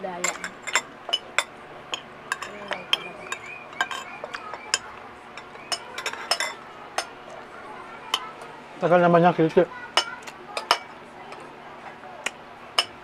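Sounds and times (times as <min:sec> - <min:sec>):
cutlery clinking against plates: 0:00.2 - 0:07.4, 0:08.1 - 0:08.4, 0:09.9 - 0:11.5, 0:12.2 - 0:13.0.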